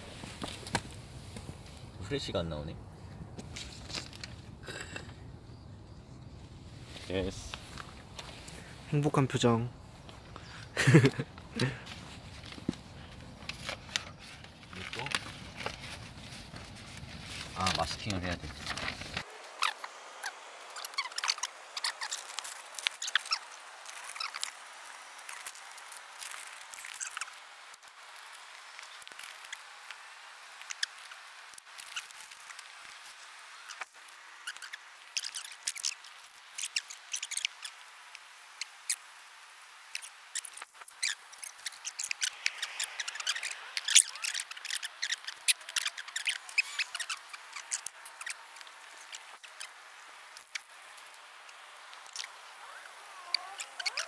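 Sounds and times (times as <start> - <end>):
hands rustling tape and paper: 10.0 - 54.0.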